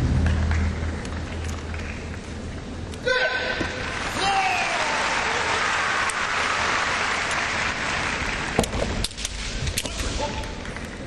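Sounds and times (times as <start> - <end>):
audience applause: 0.2 - 2.2, 3.8 - 8.8.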